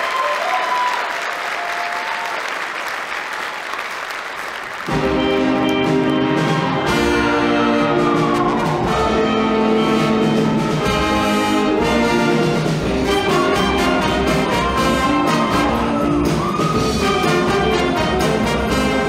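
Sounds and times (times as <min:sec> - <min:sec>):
brass melody: 0:04.9 - 0:19.0
steady drum beat: 0:04.9 - 0:19.0.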